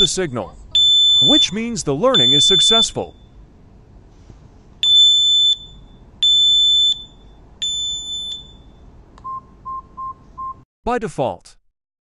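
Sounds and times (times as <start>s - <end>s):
short lower beeps: 0.0s - 1.6s, 2.2s - 3.4s, 4.8s - 10.6s
smoke detector beeps: 0.0s - 1.6s, 2.2s - 3.4s, 4.8s - 10.6s.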